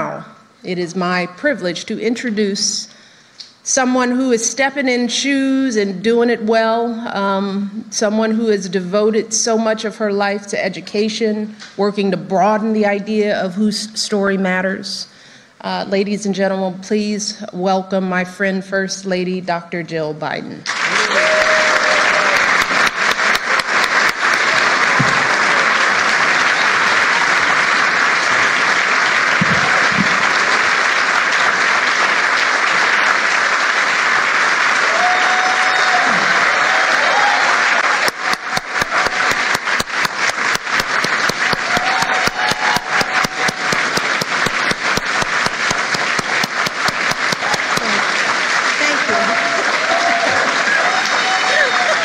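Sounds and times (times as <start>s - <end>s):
audience applauding: 20.6s - 52.0s.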